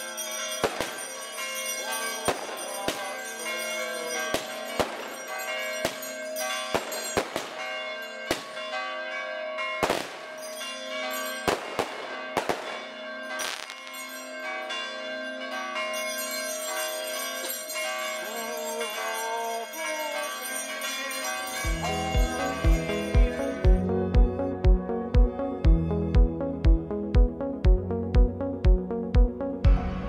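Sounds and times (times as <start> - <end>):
church bells ringing: 0.0 - 26.8
firecrackers banging: 0.6 - 1.2, 4.3 - 8.7, 9.8 - 10.3, 11.4 - 14.2.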